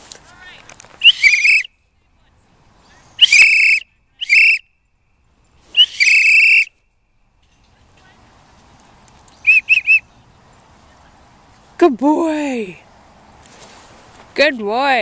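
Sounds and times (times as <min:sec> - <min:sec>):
dog whistle blasts: 0:01.0 - 0:01.7, 0:03.2 - 0:04.6, 0:05.8 - 0:06.7, 0:09.4 - 0:10.0.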